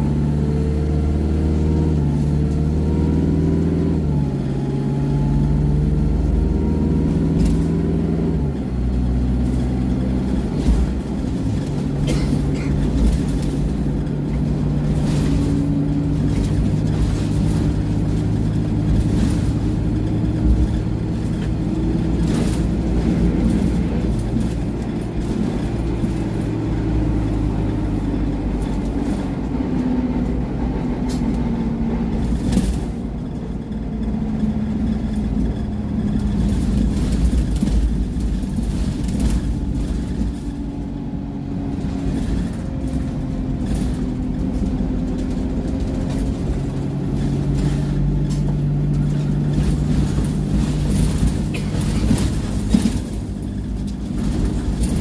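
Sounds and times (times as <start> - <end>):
bus diesel engine: 0.0 - 55.0
road rumble: 0.0 - 55.0
interior rattles: 41.8 - 55.0.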